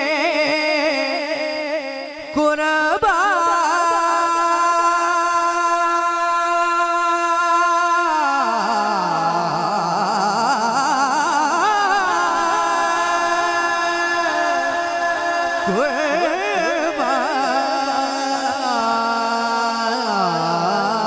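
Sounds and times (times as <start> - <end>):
person singing wordless melody: 0.0 - 21.0.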